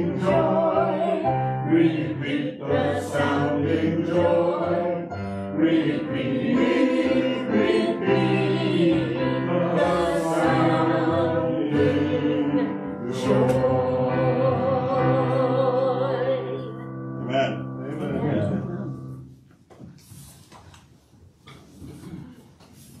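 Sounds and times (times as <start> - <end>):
group singing a hymn: 0.0 - 17.6
low accompaniment: 5.6 - 19.4.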